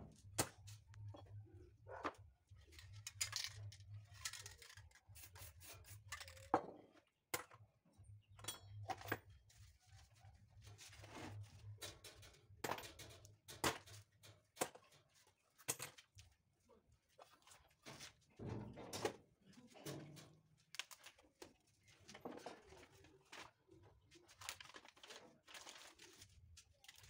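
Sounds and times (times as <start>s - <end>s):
paper rustling by hand: 20.6s - 27.0s.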